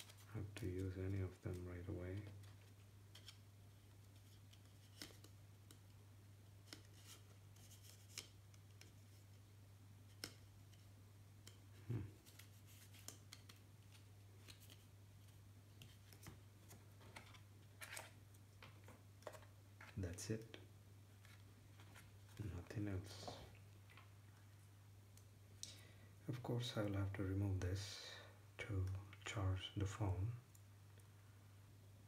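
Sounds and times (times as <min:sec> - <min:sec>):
paper rustling: 0:10.1 - 0:20.2.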